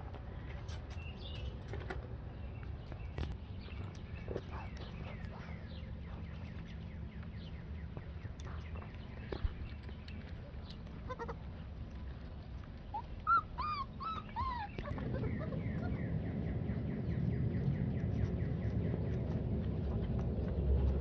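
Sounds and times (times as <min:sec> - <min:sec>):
puppy whining: 0:10.4 - 0:11.5, 0:12.5 - 0:16.3
low rumble: 0:14.5 - 0:21.0.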